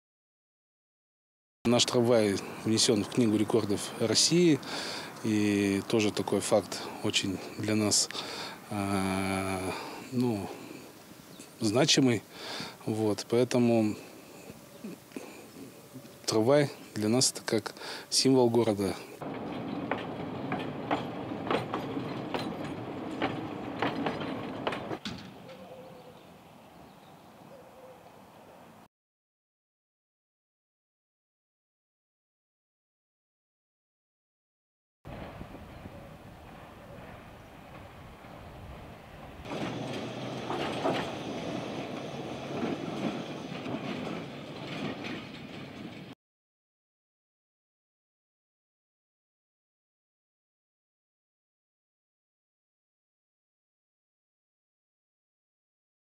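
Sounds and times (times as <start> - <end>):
tram rumbling on rails: 1.7 - 14.2, 15.8 - 25.8, 35.1 - 46.2
wheels clanking over track: 1.7 - 14.4, 15.2 - 25.8, 35.1 - 46.2
wheel clicks and knocks: 19.2 - 25.3, 39.4 - 46.1.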